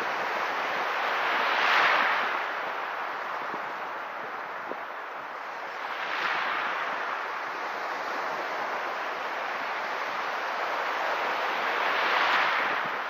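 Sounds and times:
sea surf washing on sand: 0.0 - 13.0.

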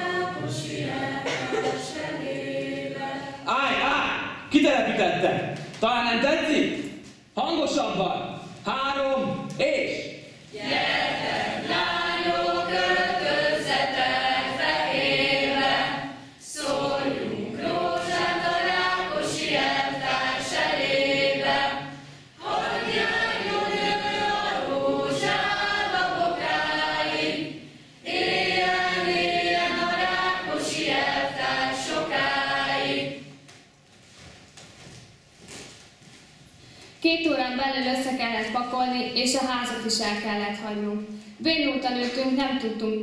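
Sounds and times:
group singing unaccompanied: 0.0 - 3.8, 10.5 - 33.4.

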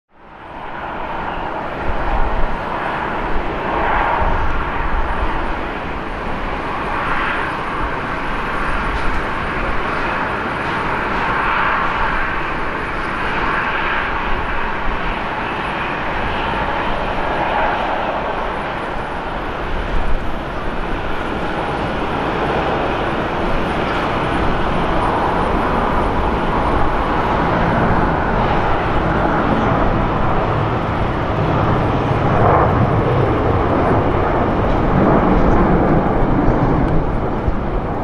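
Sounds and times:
jet engines roaring: 0.2 - 38.0.

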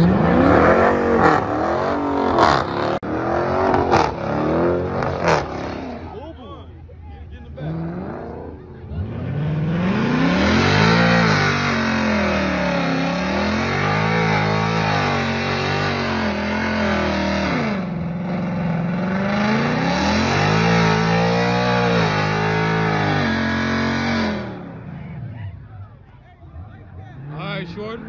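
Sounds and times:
car engine revving hard: 0.0 - 6.2, 7.6 - 25.0
tyres spinning and screeching: 7.5 - 28.0.

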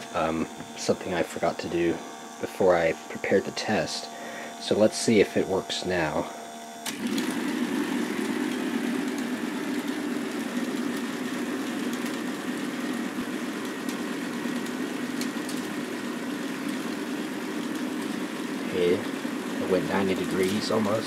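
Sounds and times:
motor and plastic gears whirring: 6.6 - 21.0.

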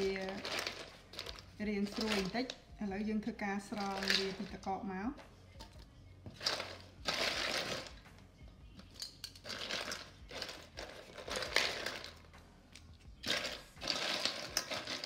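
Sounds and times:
ice cubes clinking in metal bowl: 0.0 - 2.6, 3.7 - 4.6, 6.4 - 8.0, 9.0 - 12.2, 13.2 - 15.0.

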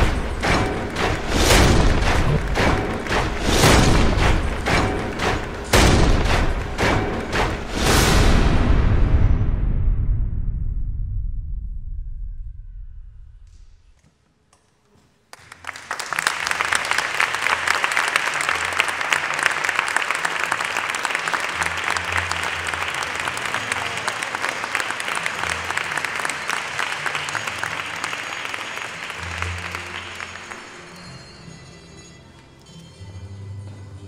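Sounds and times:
audience applauding: 0.0 - 7.7, 15.3 - 31.3.

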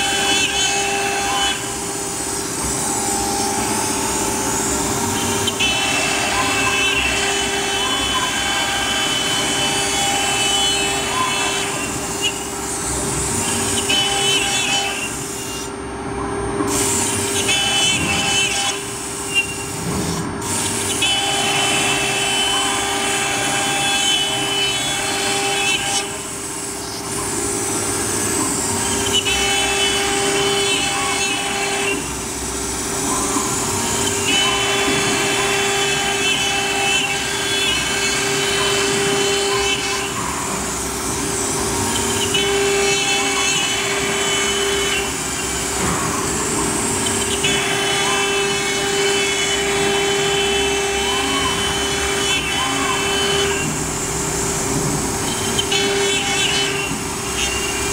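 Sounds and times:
router spindle whine: 0.0 - 15.8, 20.5 - 57.9
router bit cutting wood: 20.4 - 26.4, 27.8 - 57.9.

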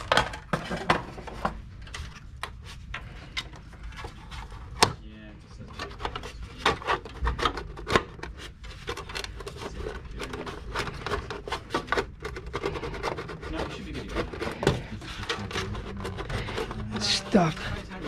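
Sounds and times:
plastic scraping against steel: 5.6 - 18.0.

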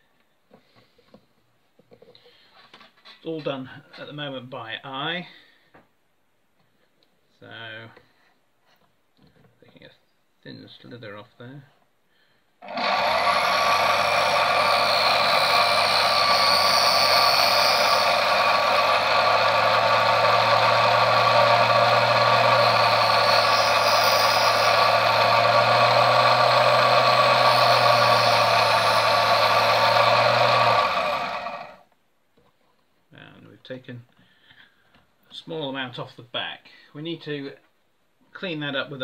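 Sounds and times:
lathe motor and spindle running: 12.6 - 31.8.

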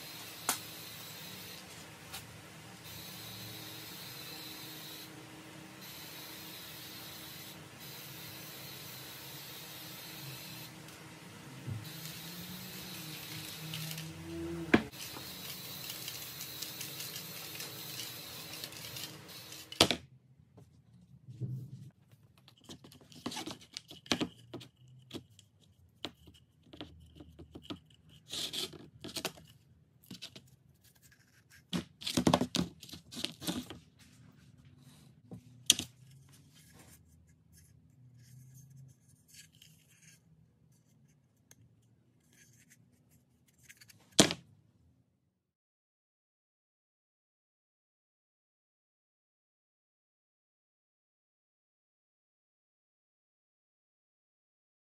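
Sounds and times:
aerosol spray can hissing: 14.9 - 19.7
rustling and scraping: 20.6 - 44.2.

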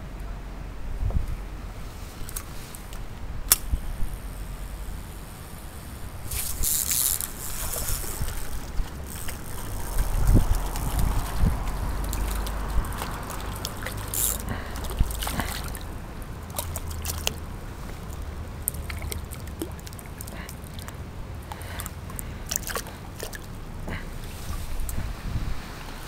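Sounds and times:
running stream water: 1.5 - 26.0
fish splashing in water: 6.3 - 25.0.

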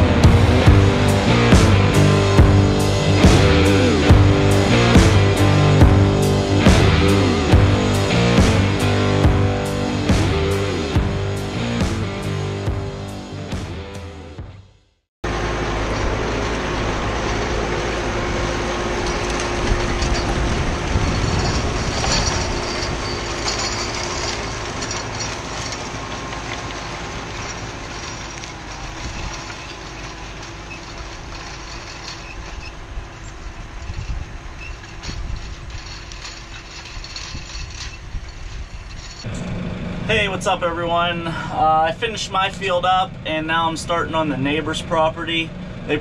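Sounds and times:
tractor engine under load: 15.2 - 46.0.

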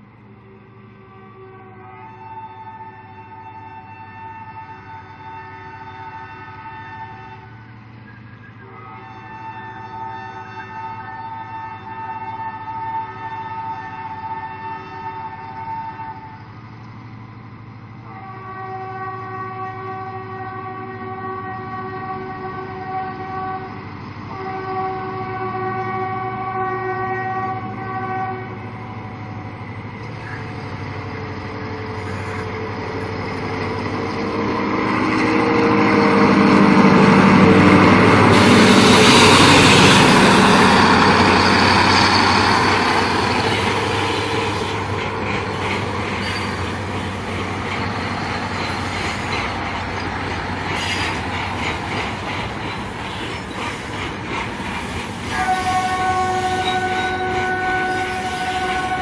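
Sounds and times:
diesel locomotive engine passing: 0.0 - 59.0
locomotive air horn blasts: 0.4 - 16.5, 18.0 - 29.3, 34.2 - 45.2, 55.1 - 59.0.

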